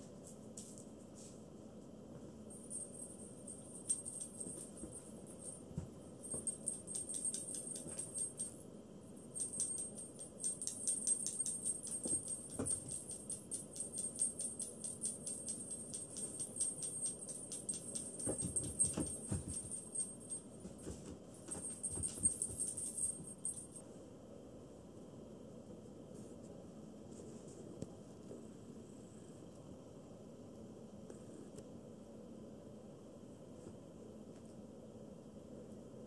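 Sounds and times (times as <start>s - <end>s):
small bells jingling: 2.5s - 23.8s.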